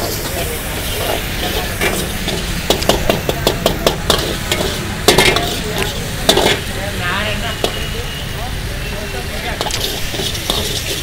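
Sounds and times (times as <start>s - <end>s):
metal ladle scraping a wok: 0.0s - 6.7s, 9.3s - 11.0s
vegetables sizzling: 0.0s - 11.0s.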